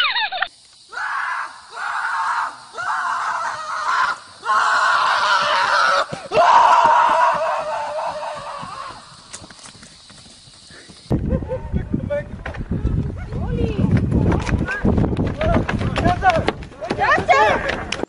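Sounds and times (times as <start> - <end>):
horse screaming: 1.0 - 9.1.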